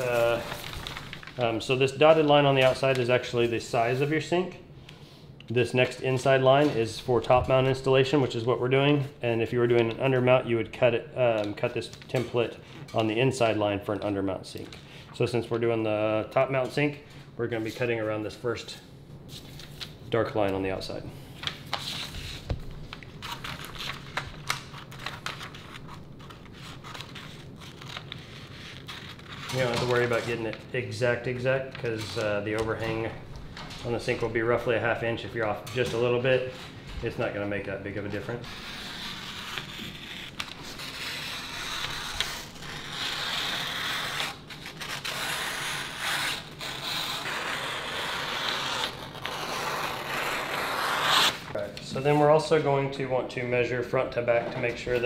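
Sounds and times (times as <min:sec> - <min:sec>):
paper rustling and crinkling: 0:00.0 - 0:04.2, 0:21.4 - 0:30.7
scissors cutting paper: 0:38.2 - 0:51.4.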